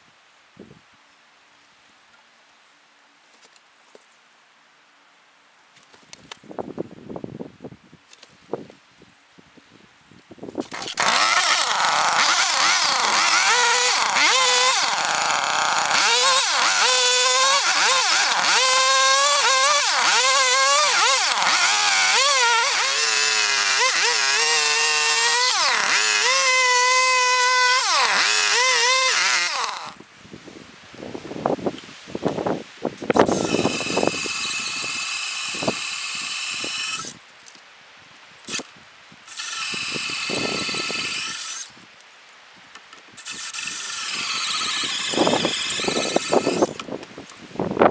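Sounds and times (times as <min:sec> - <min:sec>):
chainsaw cutting a log: 0:10.6 - 0:30.0, 0:33.1 - 0:37.2, 0:38.5 - 0:38.7, 0:39.3 - 0:41.8, 0:43.2 - 0:46.9.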